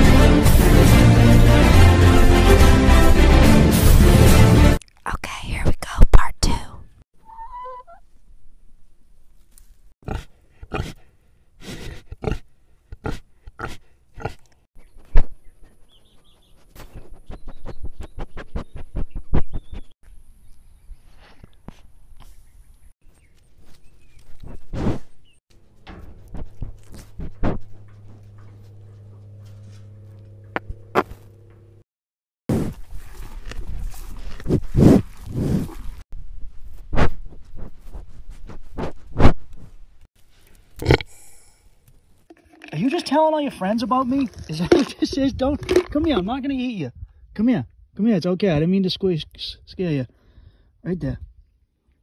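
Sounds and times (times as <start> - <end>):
pig sniffing and snorting: 10.0 - 19.8, 23.6 - 25.2, 26.0 - 30.2, 32.5 - 36.0, 36.9 - 39.4
goat chewing hay: 25.6 - 30.3, 32.7 - 36.0.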